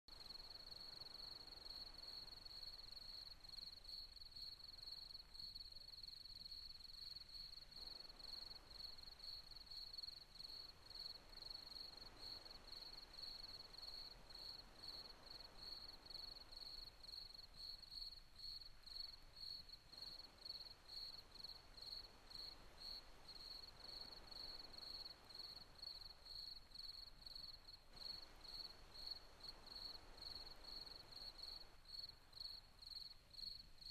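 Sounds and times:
faint crickets chirping: 0.1 - 33.9
low hiss: 0.1 - 33.9.

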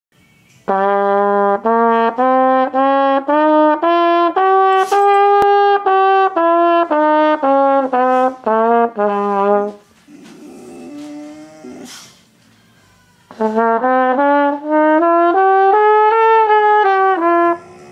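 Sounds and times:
trumpet playing a scale: 0.6 - 10.0, 13.3 - 17.9.

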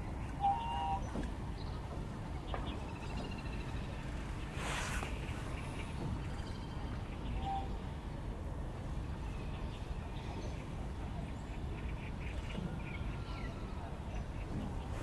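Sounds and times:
distant bird calls: 0.0 - 8.0.

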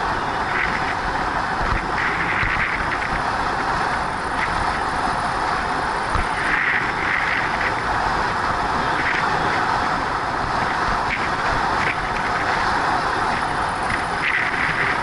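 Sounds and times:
tyres humming on asphalt: 0.0 - 15.0
wind rushing over microphone: 0.0 - 15.0.

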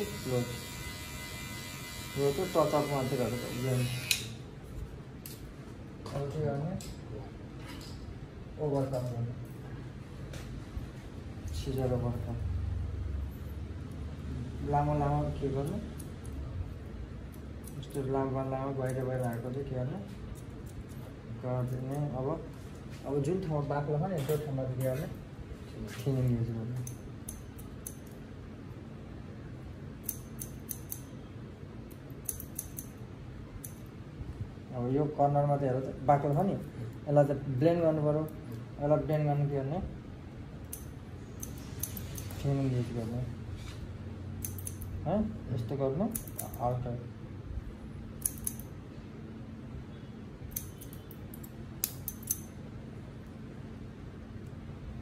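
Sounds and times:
scissors snipping hair: 15.1 - 16.5, 17.3 - 19.7, 20.3 - 22.2, 26.0 - 28.2, 30.0 - 31.1, 31.9 - 33.0, 33.6 - 33.9, 40.6 - 42.5, 44.4 - 45.0, 46.0 - 46.9, 48.2 - 48.7, 50.5 - 52.6.

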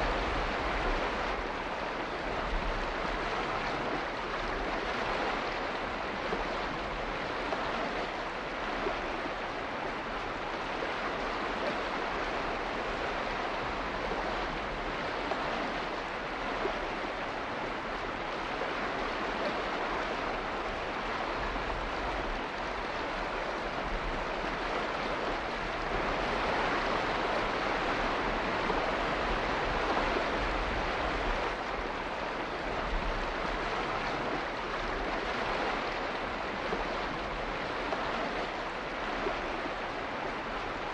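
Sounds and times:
rushing water: 0.0 - 40.9.

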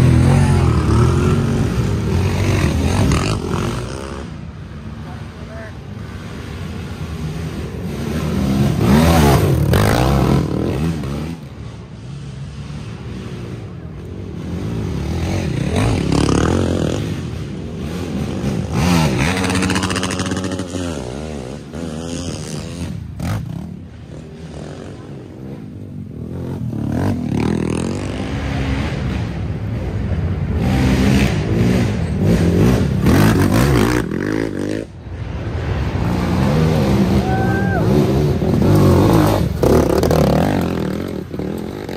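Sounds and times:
quad engines revving and shifting: 7.8 - 11.5, 14.5 - 25.3, 30.5 - 34.9, 36.3 - 41.9.

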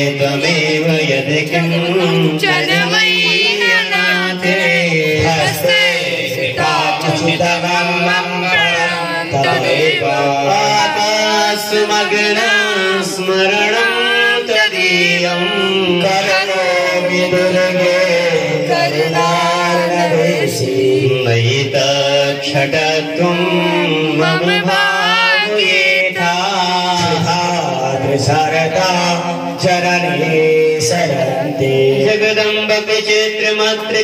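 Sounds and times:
person chanting a hymn: 0.0 - 34.0.

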